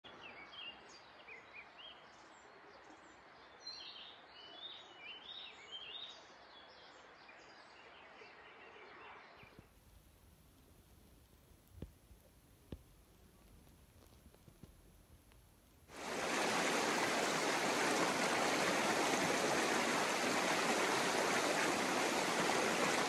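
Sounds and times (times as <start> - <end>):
steady outdoor hiss: 0.1 - 23.0
birds chirping: 16.0 - 23.0.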